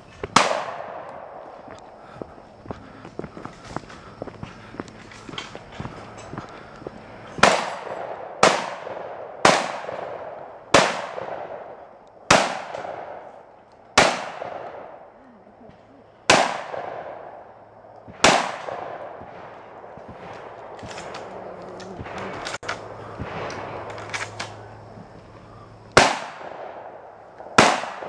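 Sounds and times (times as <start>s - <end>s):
shotgun shots with echo: 0.3s - 1.4s, 7.4s - 13.4s, 14.0s - 15.0s, 16.3s - 17.4s, 18.1s - 21.3s, 26.0s - 28.0s.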